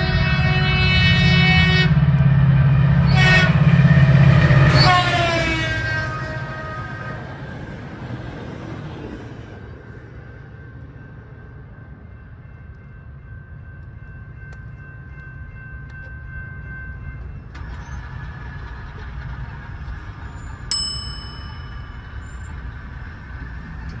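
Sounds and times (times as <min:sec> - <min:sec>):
bright ding: 0:20.7 - 0:22.1.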